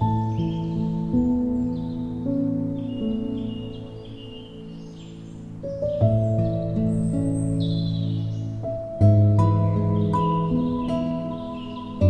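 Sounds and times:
calm instrumental music: 0.0s - 12.0s.

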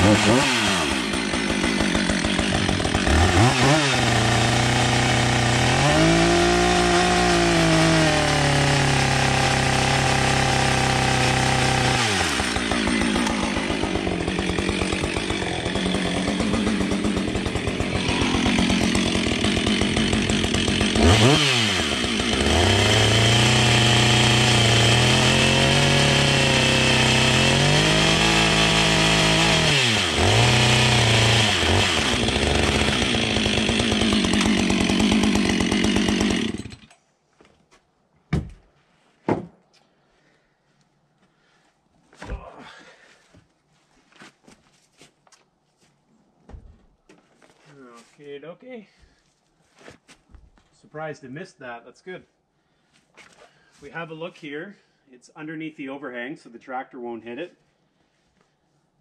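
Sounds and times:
chainsaw cutting wood: 0.0s - 37.0s.

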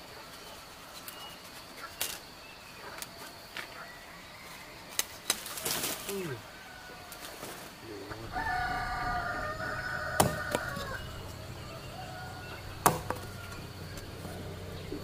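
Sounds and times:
rooster crowing: 6.4s - 7.4s, 8.0s - 15.0s
machete chopping on wooden block: 10.2s - 10.8s, 12.8s - 13.3s.

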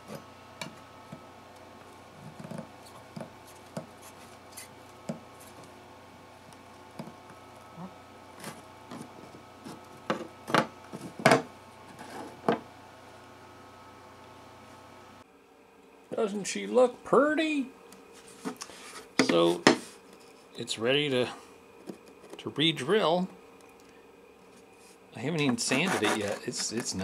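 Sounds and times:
metal spatula scraping wood: 25.4s - 27.0s.

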